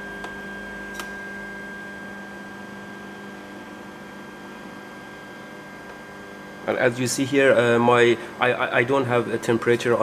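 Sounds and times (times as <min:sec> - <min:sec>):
short click: 0:00.2 - 0:01.2.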